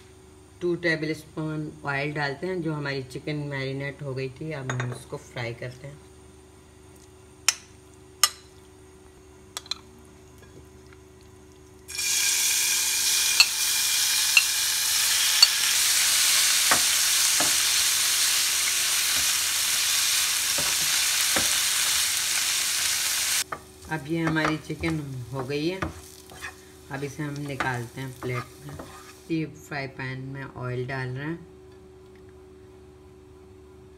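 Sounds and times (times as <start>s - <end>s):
chicken sizzling in a frying pan: 11.9s - 24.0s
spatula knocking and scraping: 23.5s - 26.6s, 27.4s - 29.2s.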